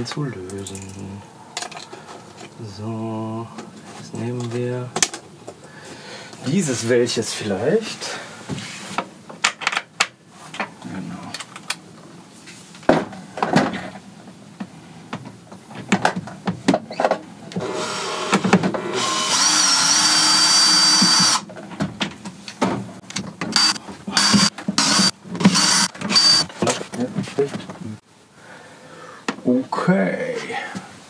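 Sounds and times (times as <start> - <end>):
power drill motor whirring: 17.6 - 21.4, 23.5 - 26.5.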